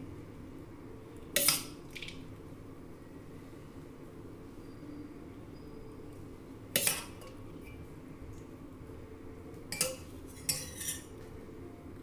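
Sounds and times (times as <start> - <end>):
spoon clinking steel bowl: 6.8 - 7.8, 9.7 - 11.1.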